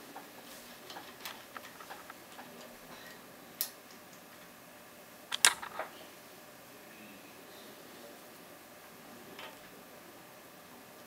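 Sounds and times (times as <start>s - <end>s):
lock pick metallic clicks: 5.3s - 5.8s.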